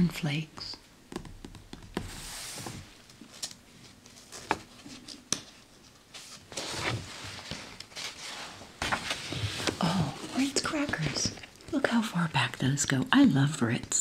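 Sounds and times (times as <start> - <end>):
page turning: 2.0 - 11.8
paper pages rustling: 2.0 - 11.9.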